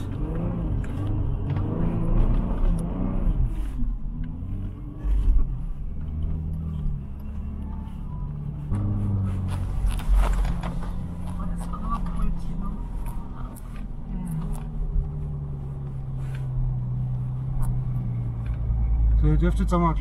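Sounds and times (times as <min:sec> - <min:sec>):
off-road vehicle engine revving: 0:00.0 - 0:20.0.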